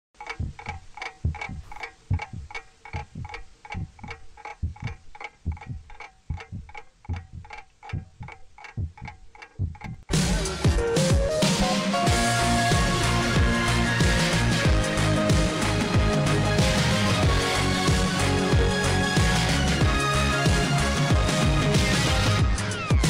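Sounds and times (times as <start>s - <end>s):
clock ticking: 0.2s - 23.0s
low thuds: 0.3s - 10.4s
loud electronic music: 10.1s - 23.0s.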